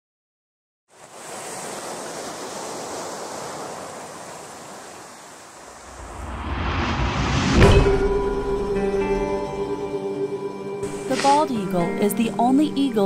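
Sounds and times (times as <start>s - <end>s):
ocean waves washing onto beach: 0.9s - 8.7s, 10.8s - 11.8s.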